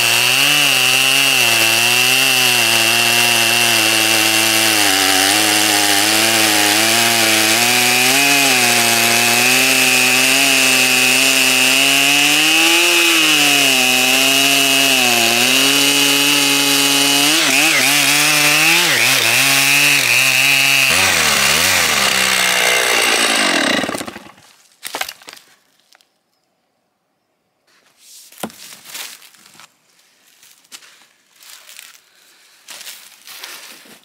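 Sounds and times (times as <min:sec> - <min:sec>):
chainsaw cutting through log: 0:00.0 - 0:24.5.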